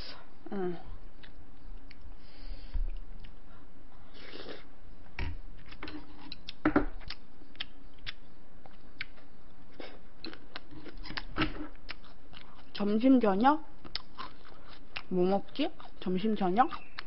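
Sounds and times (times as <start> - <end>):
chewing: 5.6 - 12.9, 13.8 - 16.0.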